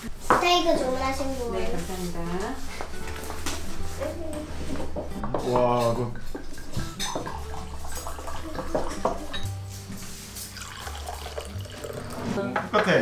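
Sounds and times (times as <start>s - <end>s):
background music: 0.0s - 13.0s
plates and cutlery clinking: 4.6s - 13.0s.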